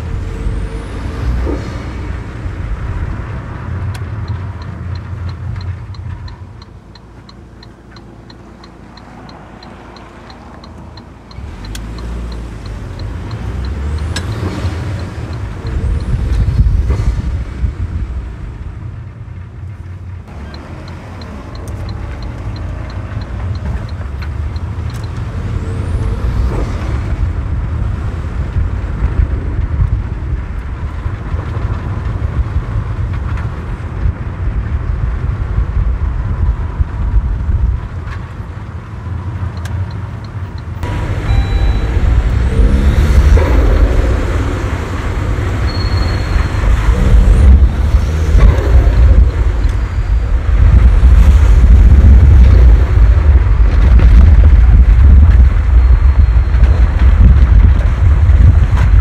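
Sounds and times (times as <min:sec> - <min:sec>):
car interior road rumble: 0:00.0 - 0:59.0
light rapid ticking: 0:02.4 - 0:16.8, 0:19.8 - 0:25.6.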